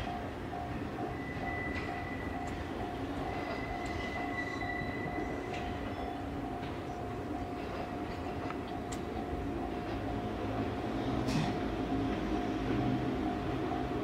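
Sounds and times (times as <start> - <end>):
train rumbling slowly: 0.0 - 14.0
wheel squeal: 3.3 - 6.1.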